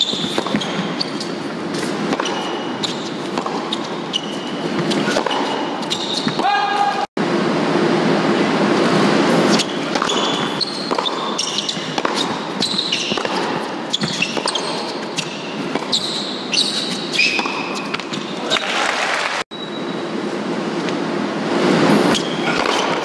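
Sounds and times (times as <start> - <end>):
sneaker squeaks on court: 0.0 - 6.9, 9.5 - 18.6, 22.1 - 23.0
racket hitting tennis ball: 0.0 - 7.1, 9.3 - 18.4, 21.8 - 23.0.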